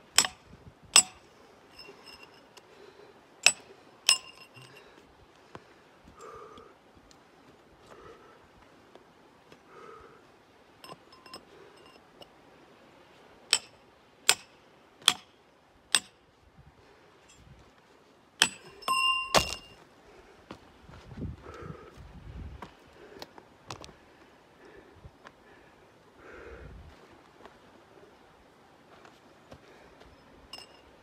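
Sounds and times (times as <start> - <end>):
hammer striking steel chisel: 0.1 - 0.4, 1.0 - 1.2, 1.8 - 2.4, 3.4 - 4.8, 13.5 - 15.3, 15.9 - 16.1, 18.4 - 19.8
ringing metallic ping: 3.4 - 4.7, 18.4 - 19.8, 30.6 - 30.8.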